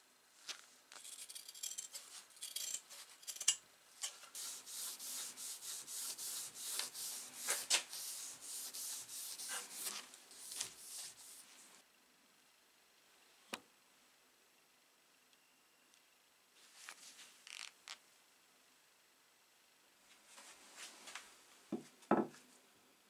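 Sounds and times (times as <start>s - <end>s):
sandpaper rubbing on metal: 4.3s - 11.7s.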